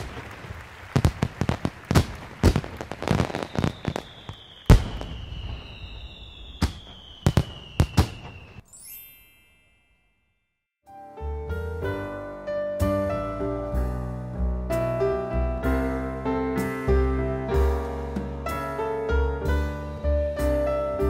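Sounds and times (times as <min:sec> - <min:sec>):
fireworks bangs: 0:00.0 - 0:08.6
fireworks crackling: 0:00.0 - 0:08.6
falling whistles: 0:03.0 - 0:08.7
high tinkle: 0:08.6 - 0:10.7.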